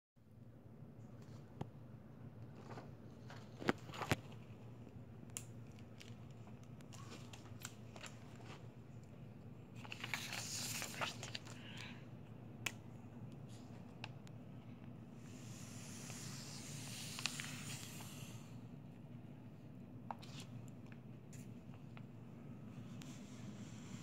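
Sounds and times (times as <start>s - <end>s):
low steady hum: 0.2s - 24.0s
paper sheets shuffling: 9.8s - 11.8s.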